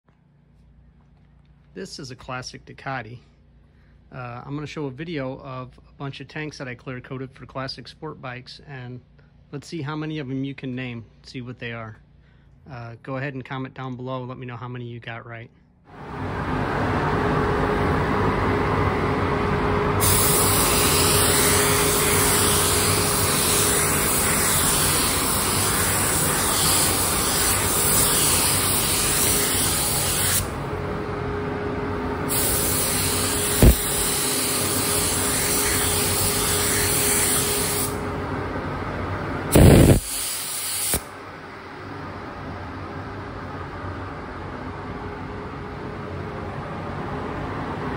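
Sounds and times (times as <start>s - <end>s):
steady background hum: 0.1s - 47.9s
spray gun hissing: 20.0s - 30.6s, 32.3s - 38.0s, 39.5s - 41.1s.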